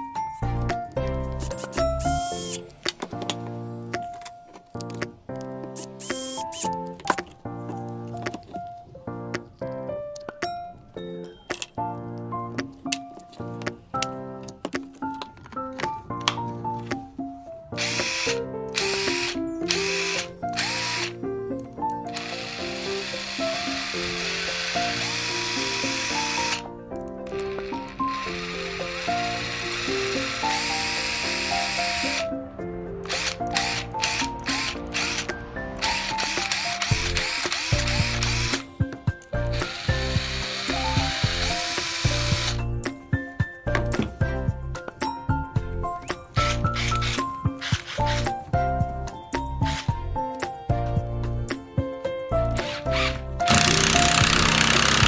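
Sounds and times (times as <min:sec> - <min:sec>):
impact driver motor running: 0:06.0 - 0:06.6, 0:17.8 - 0:21.2, 0:22.2 - 0:26.6, 0:27.4 - 0:32.2, 0:33.1 - 0:38.6, 0:39.5 - 0:42.6, 0:53.0 - 0:55.0.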